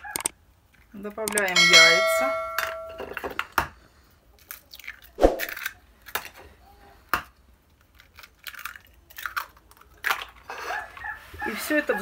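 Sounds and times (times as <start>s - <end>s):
eggs cracking into a bowl: 7.1s - 10.5s.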